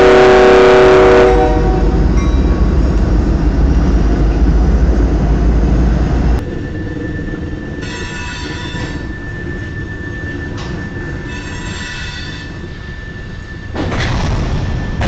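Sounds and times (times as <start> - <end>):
train cars rumbling past: 0.0 - 15.0
wheel squeal: 6.7 - 13.8
train cars crashing and grinding: 13.3 - 15.0.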